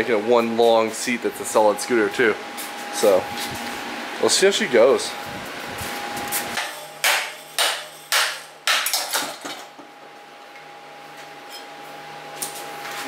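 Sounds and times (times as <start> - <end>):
hammer striking steel: 6.6 - 9.4.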